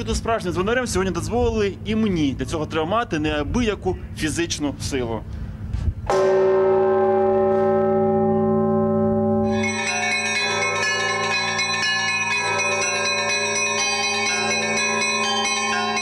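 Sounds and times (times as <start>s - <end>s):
large church bell ringing: 6.1s - 16.0s
small bells pealing: 6.2s - 16.0s.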